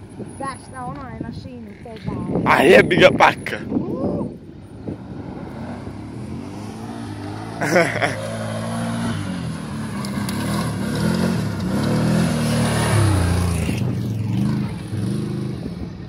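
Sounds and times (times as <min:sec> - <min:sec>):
quad bike engine revving: 0:05.3 - 0:15.8.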